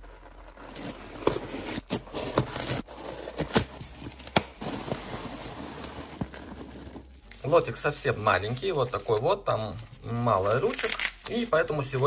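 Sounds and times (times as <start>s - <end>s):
packing peanuts rustling: 0.0s - 12.0s
tape and cardboard tearing: 0.0s - 12.0s.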